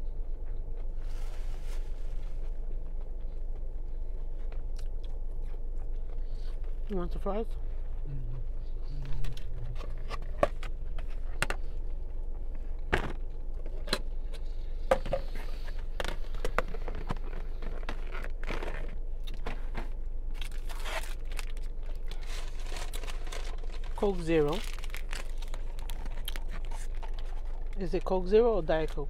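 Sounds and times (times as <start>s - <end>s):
steady low hum: 0.0s - 29.0s
food packaging rustling and tearing: 15.6s - 27.8s.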